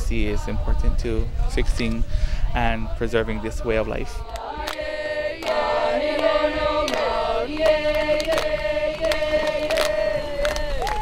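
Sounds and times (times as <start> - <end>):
group of voices chanting: 2.5 - 11.0.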